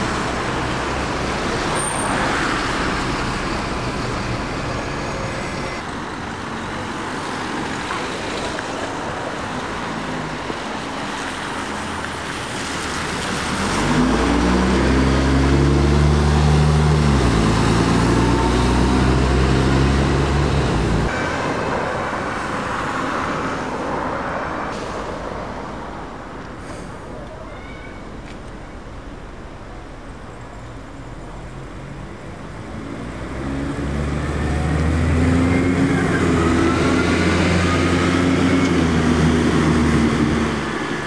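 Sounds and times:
street traffic noise: 0:00.0 - 0:41.0
bus engine running loudly: 0:13.6 - 0:22.9, 0:28.7 - 0:41.0.

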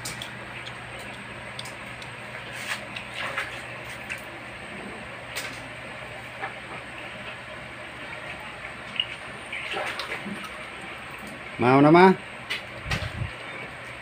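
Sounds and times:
person chewing food: 0:00.0 - 0:03.2.

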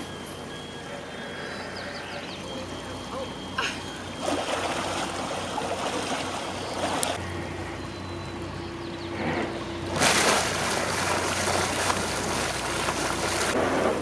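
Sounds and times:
steady low hum: 0:00.0 - 0:14.0
bubbles rushing and splashing: 0:09.9 - 0:13.6.

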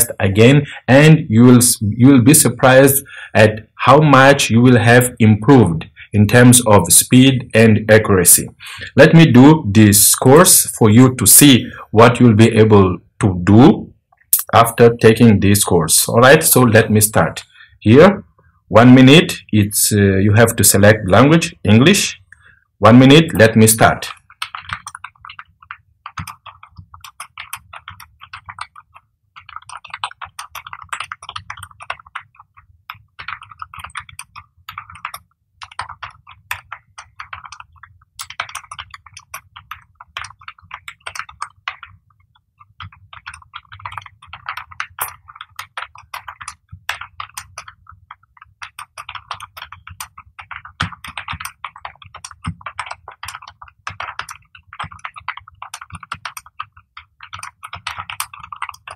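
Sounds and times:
keyboard typing clicks: 0:23.3 - 0:58.9.

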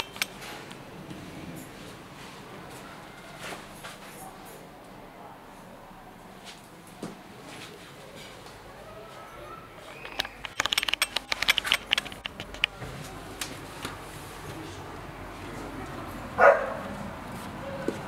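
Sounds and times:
balcony door opening: 0:09.7 - 0:14.0
dog bark: 0:16.4 - 0:16.9.

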